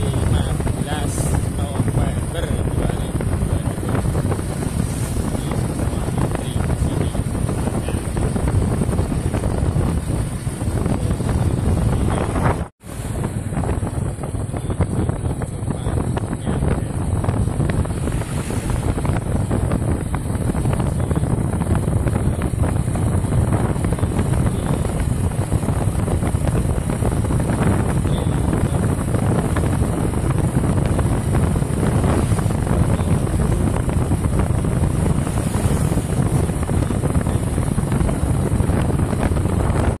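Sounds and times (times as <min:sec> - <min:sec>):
vehicle rumble: 0:00.0 - 0:40.0
wind buffeting microphone: 0:00.0 - 0:40.0.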